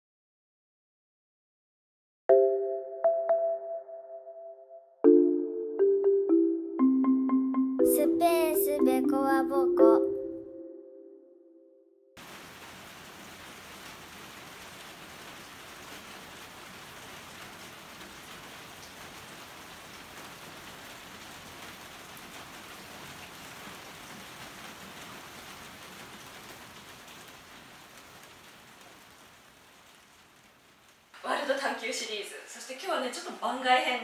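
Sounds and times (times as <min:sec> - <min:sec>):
rain on wet paving and roofing: 0:12.2 - 0:34.0.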